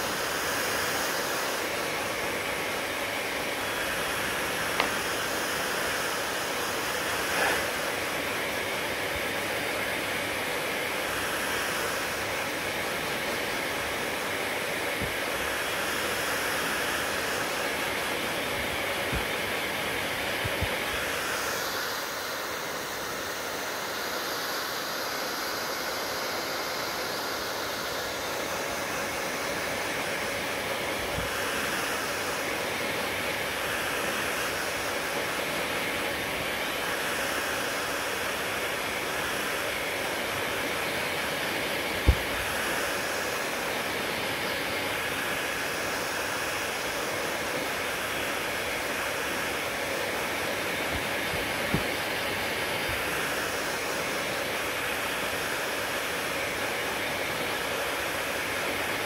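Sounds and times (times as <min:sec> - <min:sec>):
hair dryer blowing: 0:00.0 - 0:59.0.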